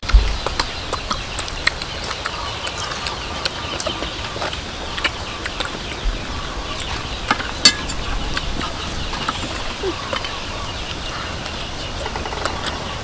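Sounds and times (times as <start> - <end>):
chewing smacks: 0.0 - 6.1
faint bird calls: 0.0 - 13.0.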